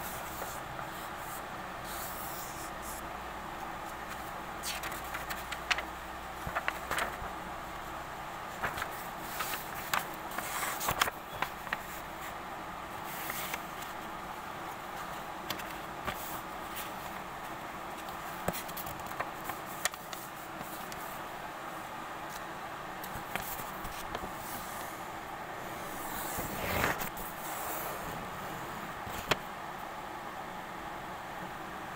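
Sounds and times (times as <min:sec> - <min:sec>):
steady background noise: 0:00.0 - 0:31.9
paper rustling and crinkling: 0:03.9 - 0:07.4, 0:08.5 - 0:12.4, 0:13.0 - 0:14.1, 0:14.9 - 0:17.3, 0:17.9 - 0:21.2, 0:23.0 - 0:24.6, 0:29.0 - 0:29.4.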